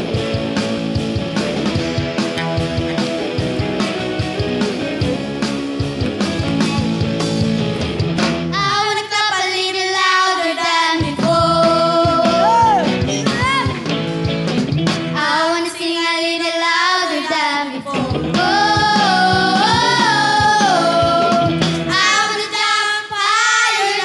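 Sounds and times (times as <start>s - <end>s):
upbeat song with guitar: 0.0s - 24.0s
children's choir singing: 8.6s - 12.6s, 15.2s - 24.0s.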